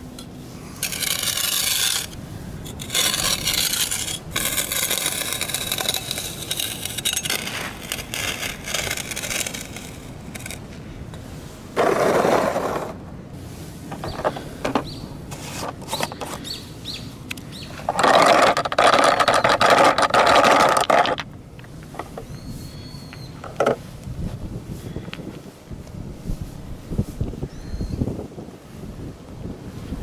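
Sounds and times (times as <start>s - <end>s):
gritty scrape: 0.0s - 13.0s, 13.6s - 16.5s, 17.7s - 22.7s
toy car rolling over gravel: 0.2s - 10.6s, 11.8s - 13.0s, 17.8s - 22.2s.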